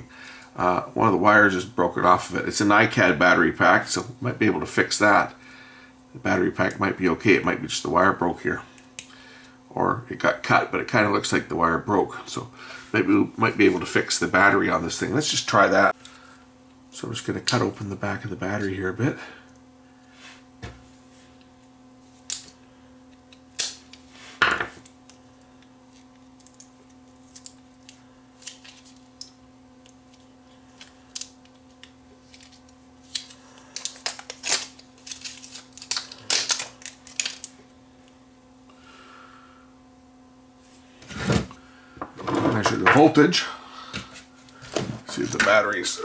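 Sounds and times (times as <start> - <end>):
low steady hum: 0.0 - 46.0
plastic crinkling: 30.2 - 37.6.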